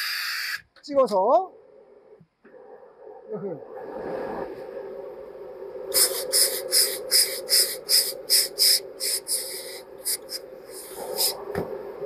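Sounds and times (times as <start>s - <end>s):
steam iron hissing: 0.0s - 0.6s, 5.9s - 11.4s.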